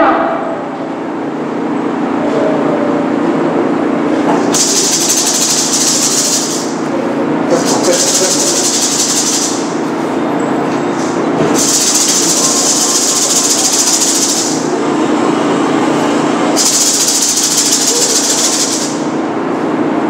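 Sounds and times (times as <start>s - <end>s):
hand rattle shaken: 4.5s - 6.8s, 7.5s - 9.8s, 11.6s - 14.6s, 16.6s - 19.0s.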